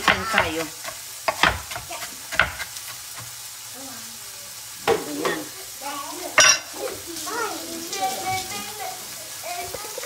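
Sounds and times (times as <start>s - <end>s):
knife chopping on wooden board: 0.0s - 3.3s
faint steady hiss: 0.0s - 10.0s.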